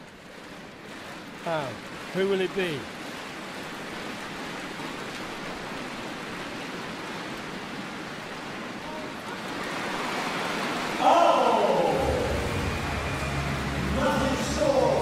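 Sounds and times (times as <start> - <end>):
arena crowd hubbub: 11.0 - 15.0.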